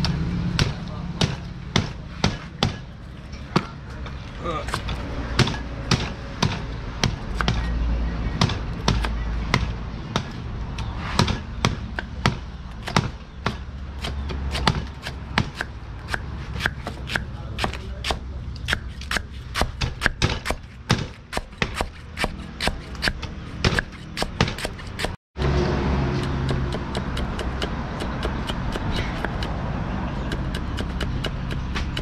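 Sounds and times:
cleaver chopping on wooden block: 4.7s - 7.7s, 8.4s - 10.4s, 11.2s - 25.2s, 26.2s - 29.6s, 30.2s - 32.0s.

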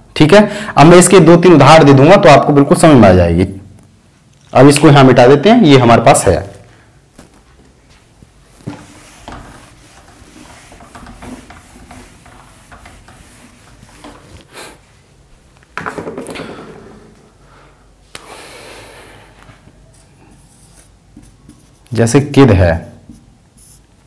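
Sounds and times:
duster wiping a whiteboard: 8.0s - 14.9s, 19.6s - 24.0s.

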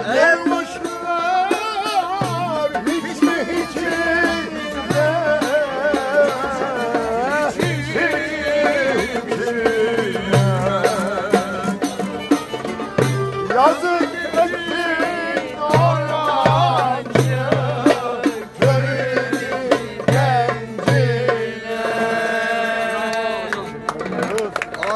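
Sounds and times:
ornamented lead melody: 10.2s - 21.3s.

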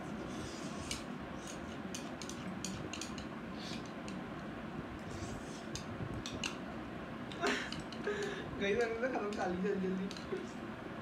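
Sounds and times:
low background noise: 0.0s - 11.0s
chopsticks clicking on plates: 0.9s - 4.2s, 5.8s - 6.6s, 7.7s - 8.3s, 9.2s - 10.3s.

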